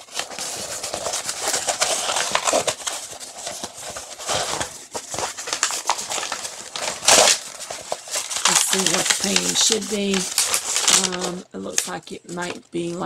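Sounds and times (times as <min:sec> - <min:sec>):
canvas and paper crackling: 0:00.0 - 0:13.0.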